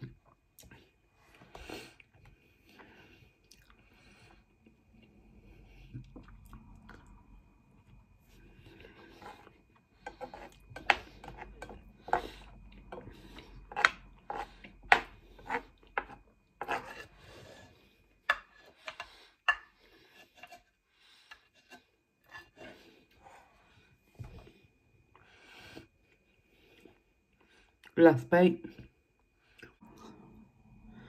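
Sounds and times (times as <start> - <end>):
plastic spoon scraping frying pan: 13.6 - 17.7.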